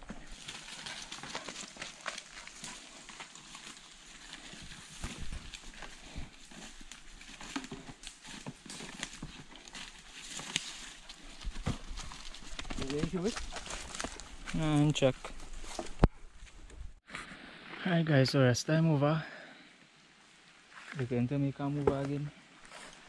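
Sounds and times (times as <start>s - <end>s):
footsteps in dry leaves: 0.0s - 16.6s
twigs snapping: 9.0s - 14.6s.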